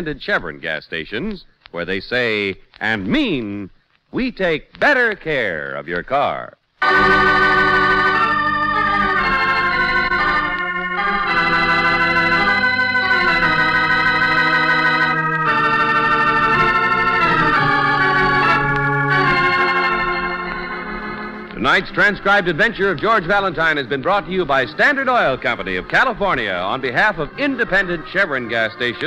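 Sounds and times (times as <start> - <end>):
organ playing slow chords: 6.8 - 29.0.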